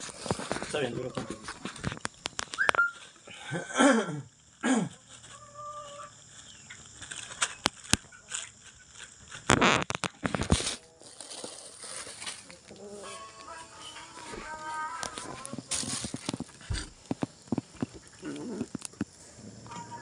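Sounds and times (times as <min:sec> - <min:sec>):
plastic bag crinkling: 0:00.0 - 0:03.3, 0:04.4 - 0:19.1
sharp clicks: 0:01.8 - 0:02.9, 0:09.5 - 0:10.6.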